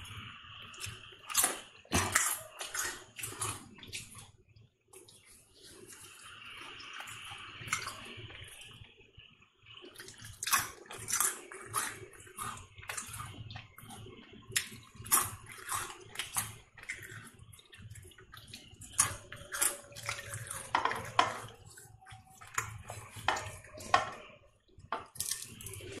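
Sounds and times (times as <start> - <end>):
chips crunching while chewed: 0.8 - 4.3, 9.9 - 24.3, 25.0 - 26.0.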